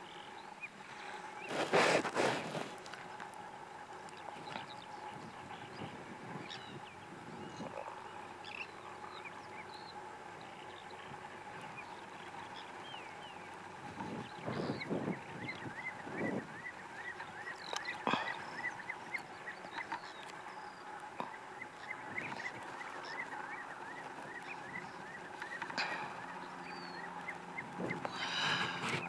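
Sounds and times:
plover piping calls: 0.0 - 29.0.

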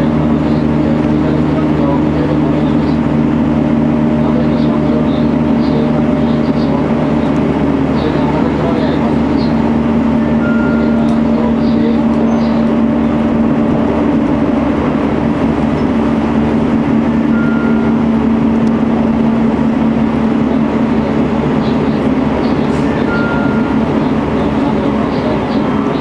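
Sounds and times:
electric train running: 0.0 - 26.0
brief high tones: 10.4 - 11.5, 17.3 - 18.1, 23.0 - 23.9.

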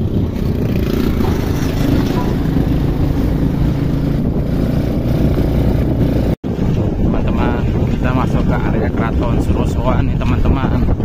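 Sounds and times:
vehicle engine running: 0.0 - 6.4
road rumble: 0.0 - 11.0
wind rushing over microphone: 0.0 - 11.0.

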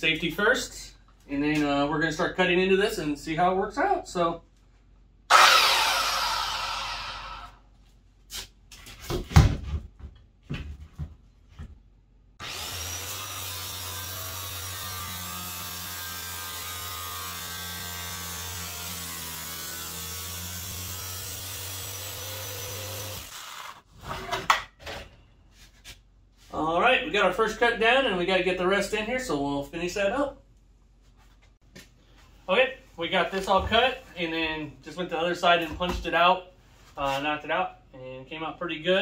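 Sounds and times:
circular saw cutting thin steel: 5.3 - 7.6, 12.4 - 23.8.

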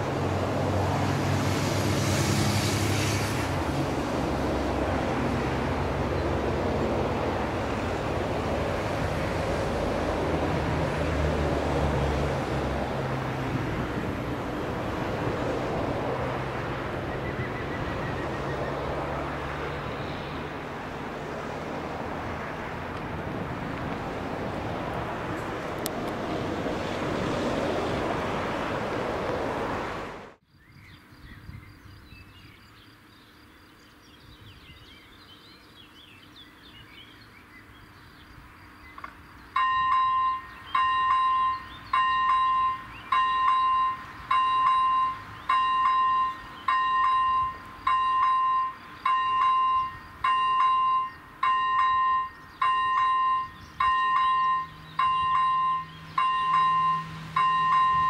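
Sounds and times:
steady rushing noise: 0.0 - 30.4
faint birdsong: 16.6 - 20.7, 30.4 - 58.0
level crossing warning bell: 39.5 - 58.0.

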